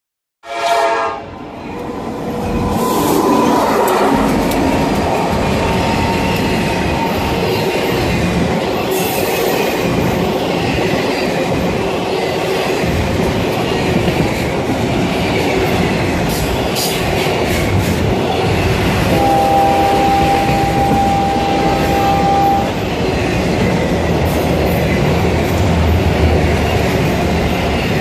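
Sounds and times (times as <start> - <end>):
locomotive horn blast: 0.4 - 1.3, 19.1 - 22.8
freight train rumbling past: 0.5 - 28.0.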